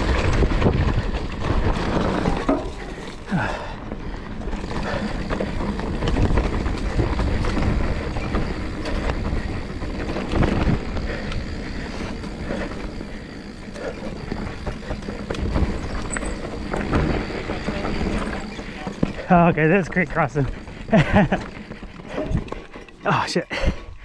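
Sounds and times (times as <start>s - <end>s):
wind buffeting microphone: 0.0s - 3.3s, 3.9s - 22.6s
bike clicks and rattles: 0.0s - 24.0s
bike tyres on dirt: 0.0s - 24.0s.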